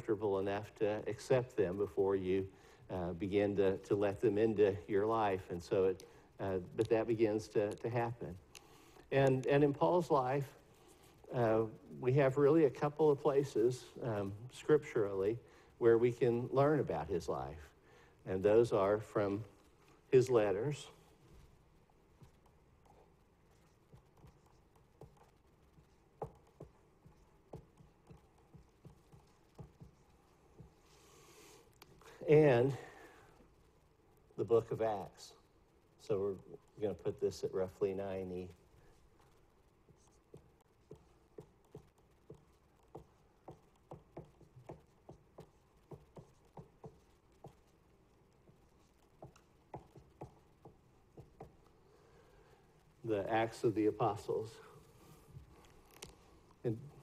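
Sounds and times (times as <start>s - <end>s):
marker writing on whiteboard: 3.2s - 13.4s, 18.4s - 32.8s, 36.2s - 57.0s
marker tapping on whiteboard: 22.2s - 30.9s, 39.9s - 47.8s, 48.4s - 51.7s.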